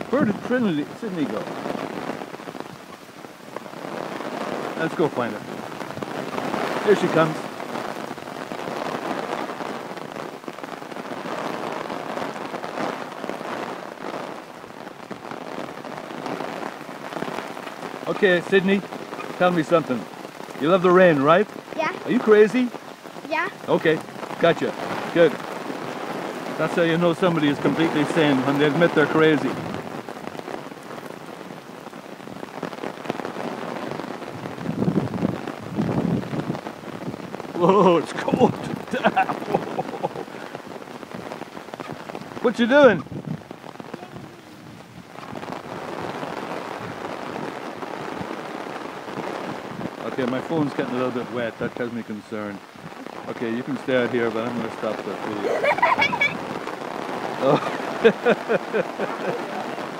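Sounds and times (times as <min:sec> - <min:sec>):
heavy rain on pavement: 0:00.0 - 0:59.9.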